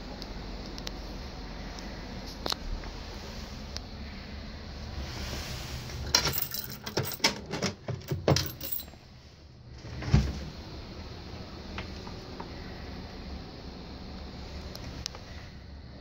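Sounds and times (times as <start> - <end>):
keys jangling in a lock: 6.1 - 9.0.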